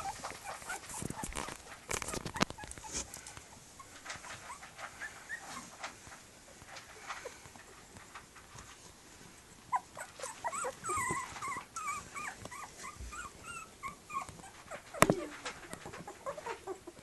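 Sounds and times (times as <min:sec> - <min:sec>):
puppies squeaking: 0:00.0 - 0:05.9, 0:09.6 - 0:17.0.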